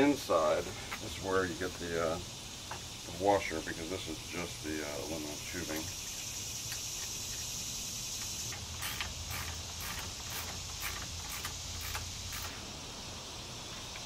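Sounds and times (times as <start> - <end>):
crickets chirring: 0.0 - 14.0
socket ratchet clicking: 8.1 - 12.6.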